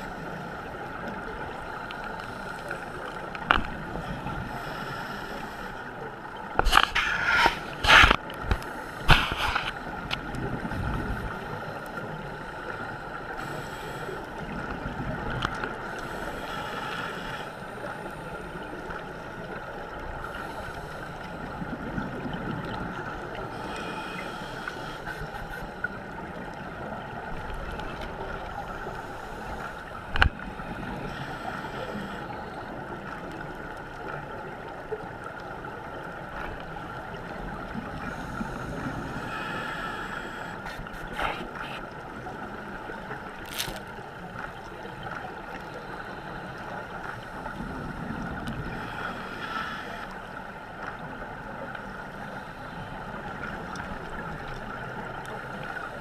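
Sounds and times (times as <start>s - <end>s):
underwater watery rush: 0.0s - 56.0s.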